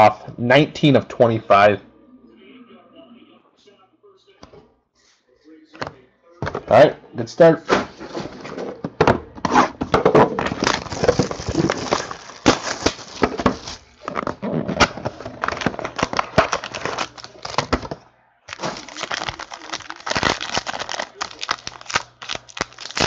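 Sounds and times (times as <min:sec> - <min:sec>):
foil wrappers crinkling: 0:10.3 - 0:23.0.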